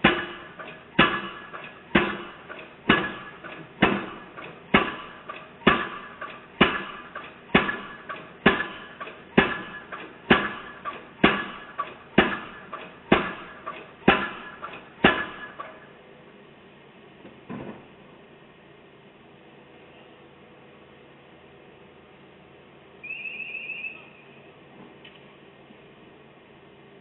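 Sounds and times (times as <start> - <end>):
piling hammer metallic clanks: 0.0 - 15.9.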